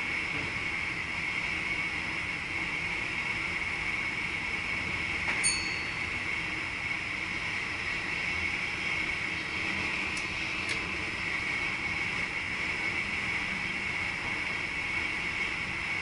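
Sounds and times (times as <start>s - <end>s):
train running noise: 0.0s - 16.0s
short high chime: 5.4s - 6.1s.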